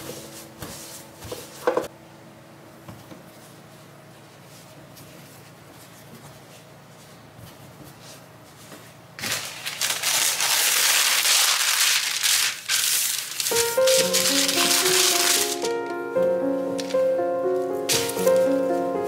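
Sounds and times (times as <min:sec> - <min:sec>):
baking paper crinkling: 0:07.9 - 0:15.9, 0:17.9 - 0:18.9
music: 0:13.5 - 0:19.0.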